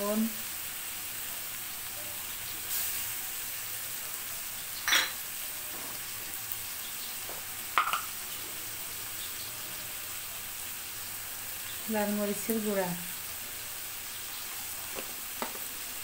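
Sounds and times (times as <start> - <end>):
fish sizzling in a pan: 0.0 - 16.0
metal utensil clinking on pan: 4.8 - 5.2, 7.8 - 8.1.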